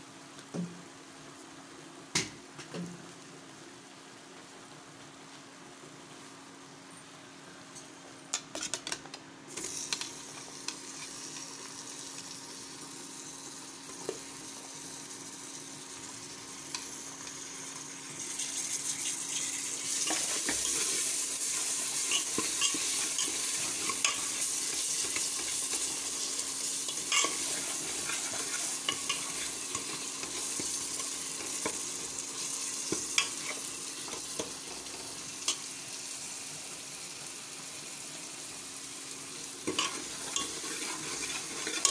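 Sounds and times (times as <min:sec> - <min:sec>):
food sizzling in a pot: 0:09.5 - 0:41.9.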